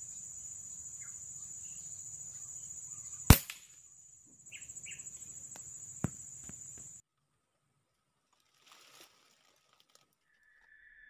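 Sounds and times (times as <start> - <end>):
bird chirps: 0.0 - 7.0
sharp click: 3.3 - 3.7.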